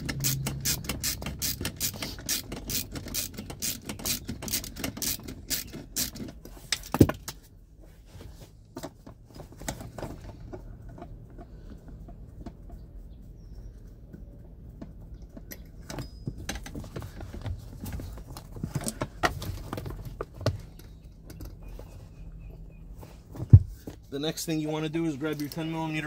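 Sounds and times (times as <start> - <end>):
socket ratchet clicking: 0.0 - 6.4.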